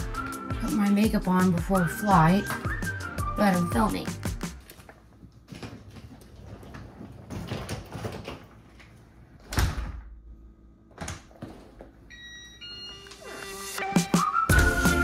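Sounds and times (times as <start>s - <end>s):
music: 0.0s - 4.7s, 12.8s - 15.0s
clothes and bag rustling: 4.5s - 9.0s.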